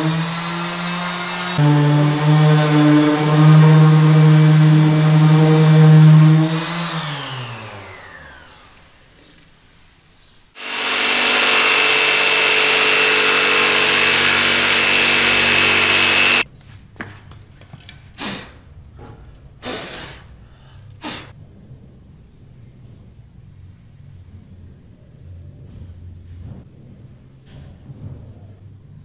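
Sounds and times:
jigsaw cutting wood: 0.0s - 8.8s, 10.6s - 16.4s.

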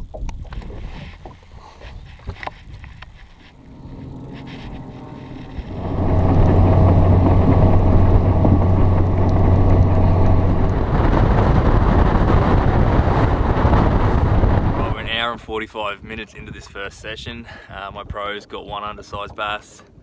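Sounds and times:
wind and water rushing: 0.0s - 18.1s
outboard motor running: 2.4s - 15.0s.

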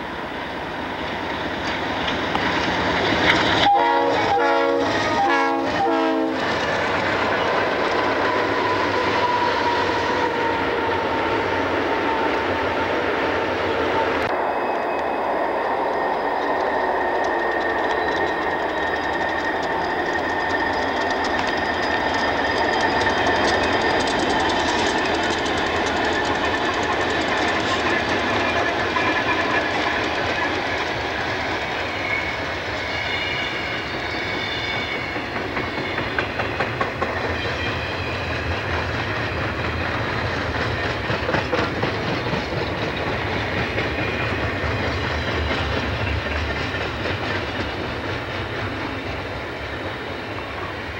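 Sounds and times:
diesel locomotive engine rumble: 0.0s - 50.9s
train wheels clicking over rail joints: 1.0s - 12.4s, 14.8s - 50.9s
steady high tone: 13.8s - 24.1s.

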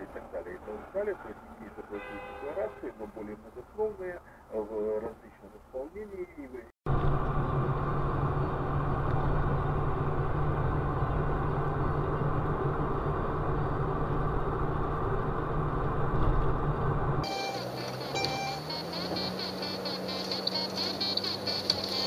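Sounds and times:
vehicle engine drone and road noise: 0.0s - 22.0s
music: 17.2s - 22.0s.

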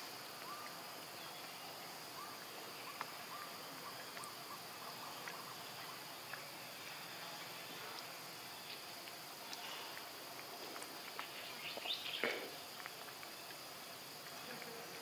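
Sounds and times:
faint clicks: 8.7s - 15.0s.

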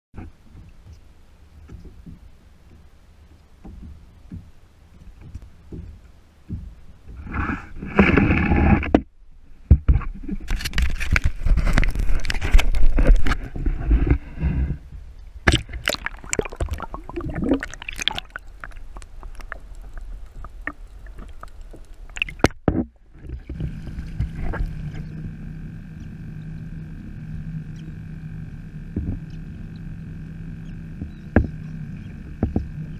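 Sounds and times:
steady hum with held tones: 0.2s - 32.9s
water splashing against kayak: 9.7s - 25.1s
gear knocking against hull: 32.3s - 32.9s.

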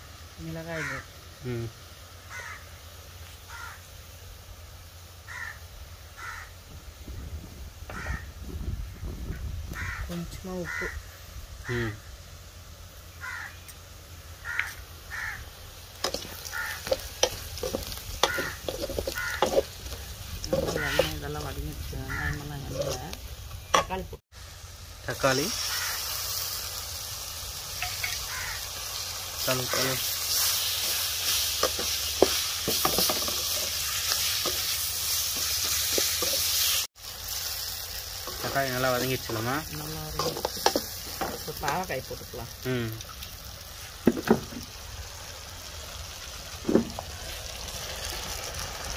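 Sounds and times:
oil sizzling: 0.0s - 48.9s
crows cawing: 0.7s - 1.1s, 2.3s - 2.7s, 3.5s - 3.9s, 5.2s - 6.6s, 7.9s - 8.3s, 9.7s - 11.1s, 13.2s - 13.7s, 14.4s - 21.3s, 22.0s - 22.9s, 25.6s - 26.2s, 27.8s - 29.0s
ladle scraping and knocking pan: 16.0s - 21.2s, 30.8s - 36.7s, 40.2s - 41.6s.

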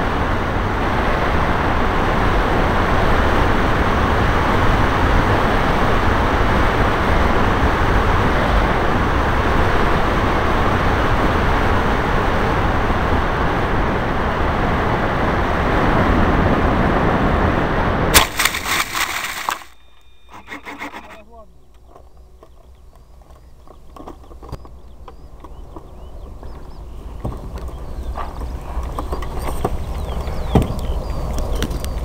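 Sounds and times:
rushing air and machine noise: 12.3s - 21.2s
glider scraping through grass: 18.2s - 21.2s.

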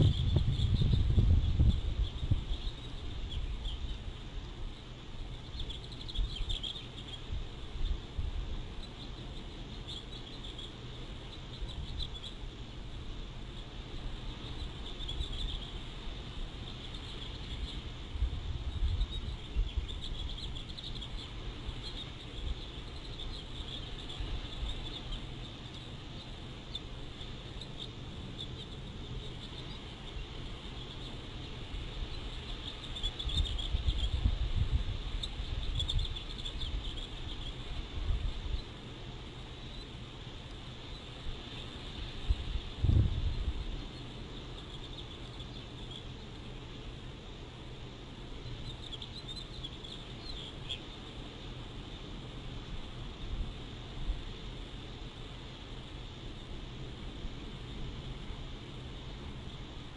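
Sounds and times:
wind gusting on microphone: 0.0s - 4.8s, 17.6s - 20.8s, 31.7s - 36.9s, 41.3s - 43.9s
faint high-pitched chirps: 0.0s - 52.0s
thin high hiss: 0.0s - 59.9s.

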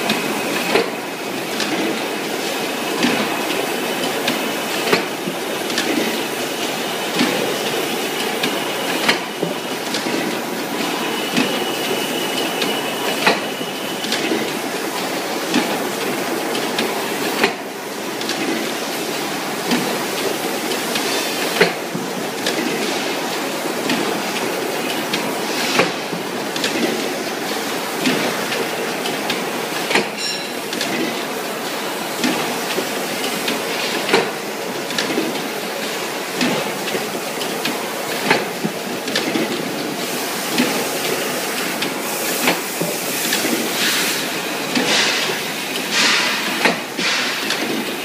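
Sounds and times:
machine knocking: 41.6s - 48.0s.

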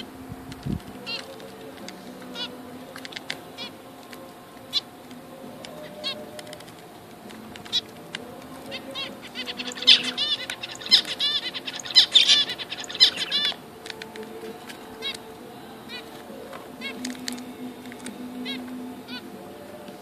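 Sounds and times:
finches honking beeps: 4.6s - 6.6s, 8.6s - 17.0s.

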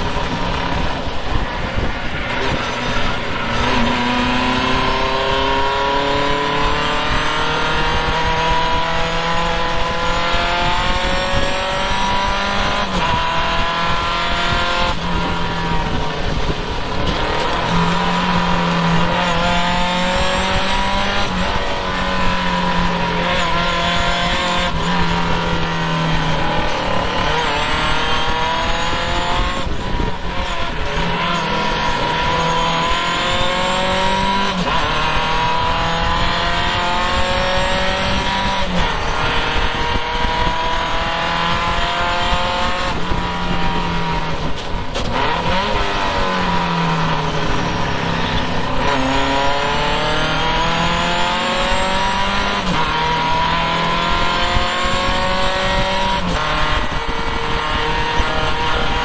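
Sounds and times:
race car engine revving: 0.0s - 59.0s
wind rush: 0.0s - 59.0s.

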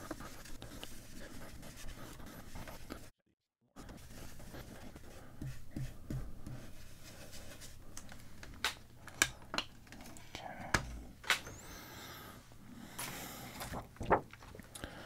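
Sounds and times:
brush scratchy rubbing: 0.0s - 3.1s, 3.8s - 7.8s.

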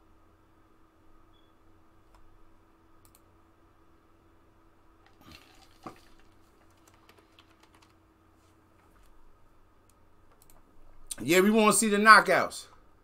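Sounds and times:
keyboard typing: 6.0s - 8.0s.

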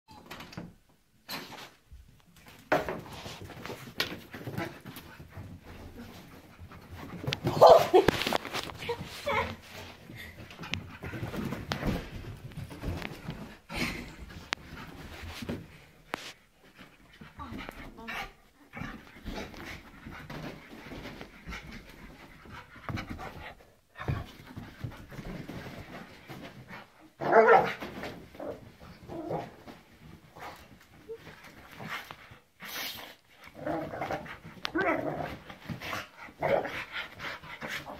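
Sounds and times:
dog racing around on carpet: 2.4s - 32.4s, 33.0s - 37.9s
dog panting hard: 35.7s - 37.9s.

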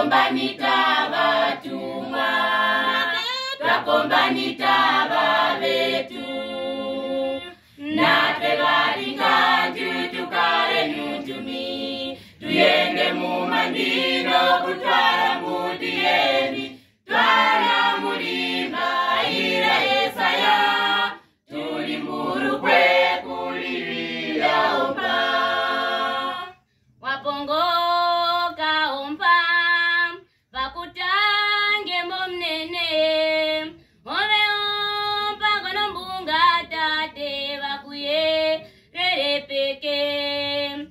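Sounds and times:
youth choir singing a cappella: 0.0s - 40.9s.

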